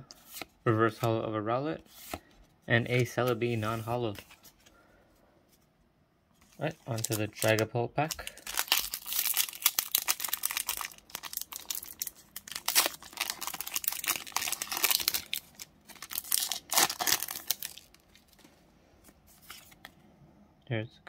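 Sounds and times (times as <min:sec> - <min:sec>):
foil wrapper crinkling and tearing: 0:06.8 - 0:18.4.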